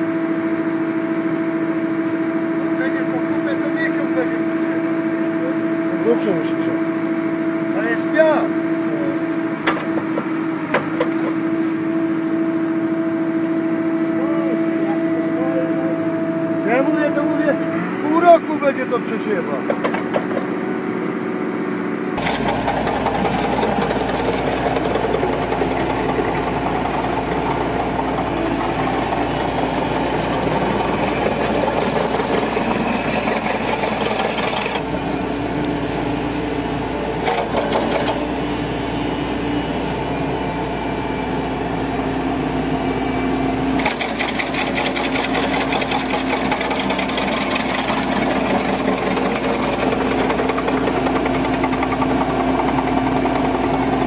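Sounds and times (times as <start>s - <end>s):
excavator engine: 0.0s - 54.0s
flail mower clattering: 22.2s - 34.9s, 37.2s - 38.5s, 43.8s - 54.0s.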